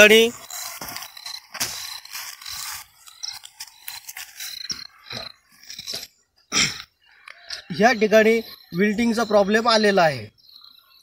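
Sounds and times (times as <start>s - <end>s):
rustling of dry vines and plastic: 0.0s - 6.1s.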